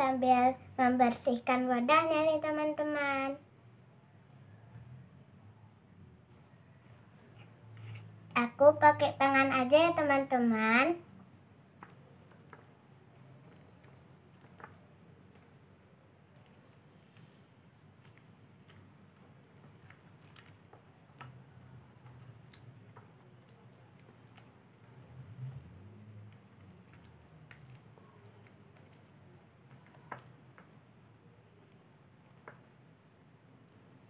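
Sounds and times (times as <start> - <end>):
slime squelching: 6.3 - 10.9, 11.7 - 32.9
spatula scraping: 6.8 - 8.2.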